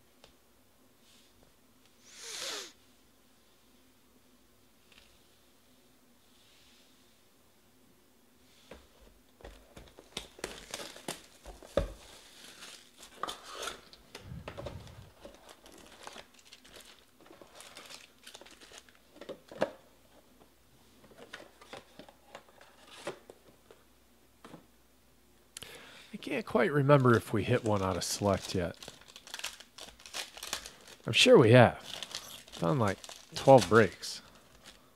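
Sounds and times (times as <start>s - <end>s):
foil wrappers crinkling: 9.8s - 19.6s, 26.5s - 34.9s.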